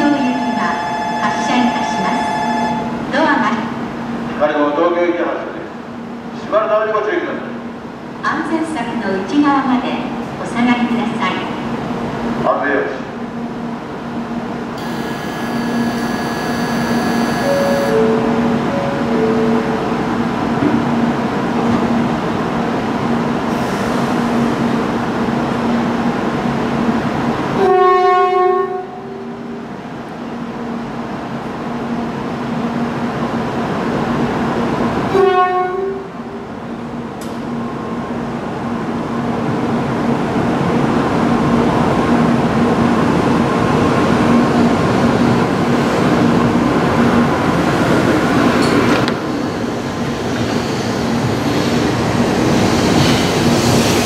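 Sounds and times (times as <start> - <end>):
train running noise: 13.7 - 28.4, 29.0 - 54.0
train horn blasts: 14.8 - 18.0, 27.6 - 29.3, 35.1 - 36.1.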